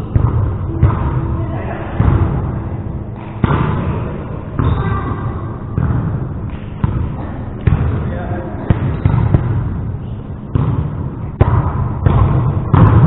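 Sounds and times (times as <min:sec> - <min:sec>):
echoing hall noise: 0:00.0 - 0:13.0
volleyball thuds: 0:10.5 - 0:13.0.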